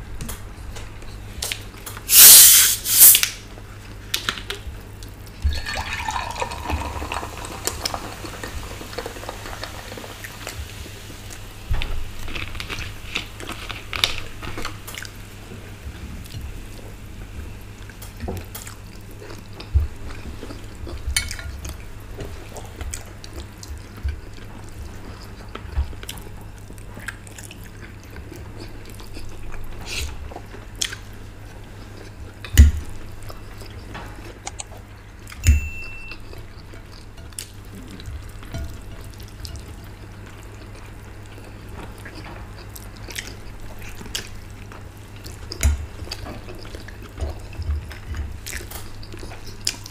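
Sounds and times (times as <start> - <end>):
water poured into glass jug: 5.5 - 9.8.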